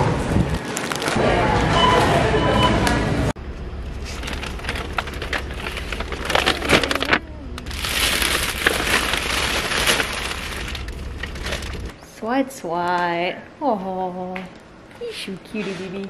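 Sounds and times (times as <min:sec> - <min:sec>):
plastic wrapping crinkling: 0:04.0 - 0:12.0.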